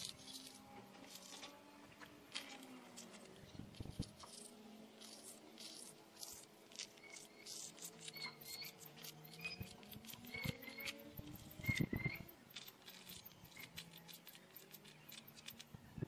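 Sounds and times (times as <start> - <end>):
chalk scratching on board: 0.0 - 1.6, 2.3 - 15.7
faint high chirps: 5.2 - 16.0.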